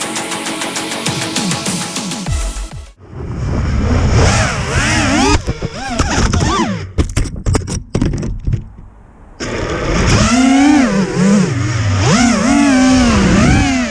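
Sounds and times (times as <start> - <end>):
drone motors whining: 3.4 - 7.0, 9.4 - 13.9
sharp knocks and scraping: 5.1 - 10.3.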